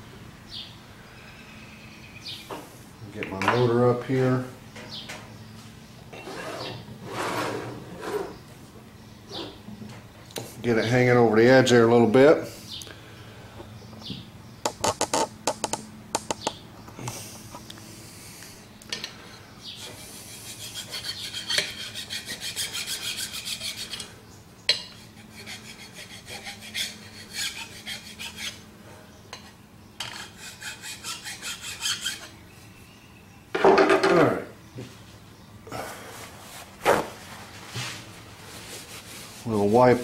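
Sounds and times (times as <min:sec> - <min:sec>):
loud scrape: 0:06.2 - 0:08.4
hand file rasping on metal: 0:19.8 - 0:24.1, 0:24.8 - 0:28.6, 0:30.0 - 0:32.3.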